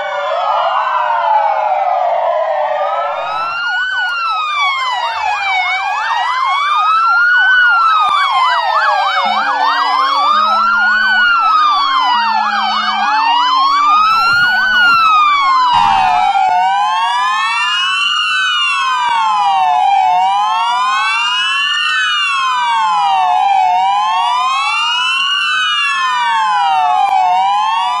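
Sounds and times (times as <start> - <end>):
siren yelp: 0.0 - 28.0
sirens wailing: 0.0 - 28.0
two-tone siren: 0.0 - 28.0.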